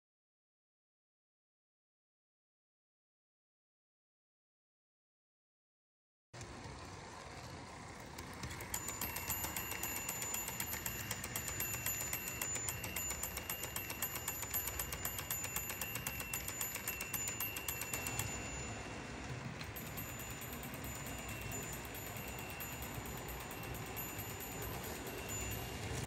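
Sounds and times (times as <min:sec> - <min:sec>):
toy train running: 0:06.4 - 0:26.0
electronic crossing bell ringing: 0:08.4 - 0:26.0.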